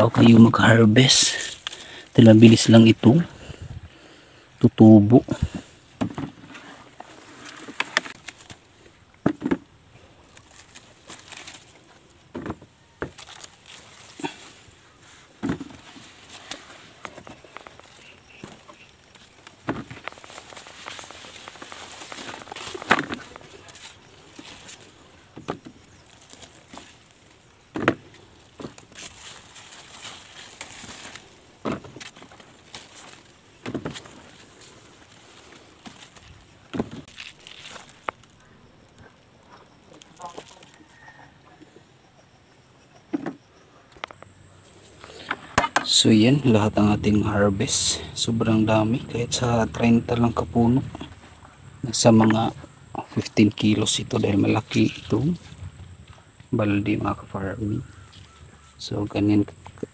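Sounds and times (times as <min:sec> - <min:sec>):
leaves rustling: 0:00.0 - 0:41.2, 0:44.0 - 0:59.9
knocks and thumps: 0:06.0 - 0:06.5
vines snapping and knocking: 0:07.4 - 0:14.7, 0:15.4 - 0:39.0.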